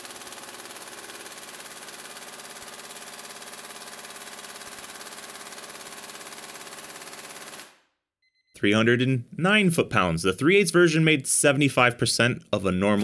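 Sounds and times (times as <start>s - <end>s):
air impact wrench rattling: 0.0s - 7.7s.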